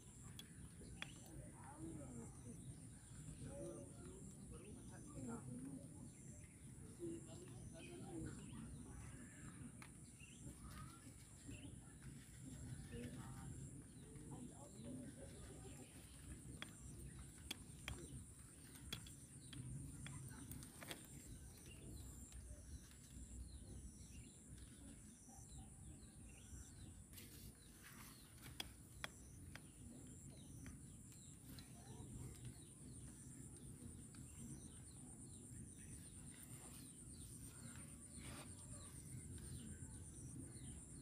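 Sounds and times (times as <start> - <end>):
faint bird chirps: 0.0 - 41.0.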